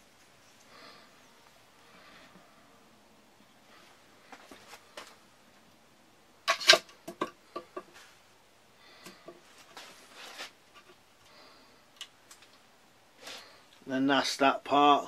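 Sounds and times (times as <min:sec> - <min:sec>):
soft scuffing: 0:03.8 - 0:05.2, 0:09.5 - 0:10.6.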